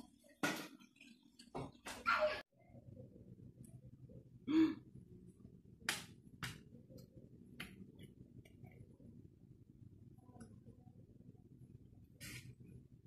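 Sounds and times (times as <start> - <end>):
faint room noise: 0.0 - 13.0.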